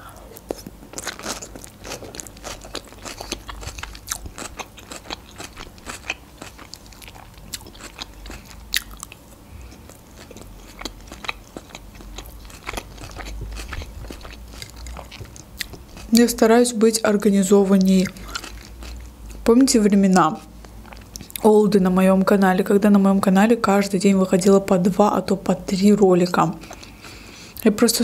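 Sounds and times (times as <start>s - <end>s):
chewing crisp salad: 0.2s - 16.6s, 17.6s - 19.5s, 20.4s - 21.5s, 26.6s - 27.7s.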